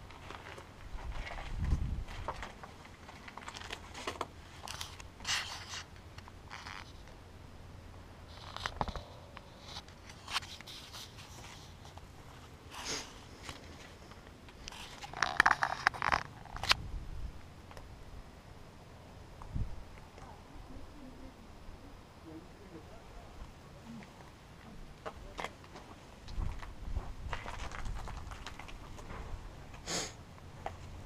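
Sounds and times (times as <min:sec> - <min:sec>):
footsteps on rubble and gravel: 0:00.0 - 0:05.2, 0:25.0 - 0:29.8
clothing brushing camera: 0:08.3 - 0:12.1.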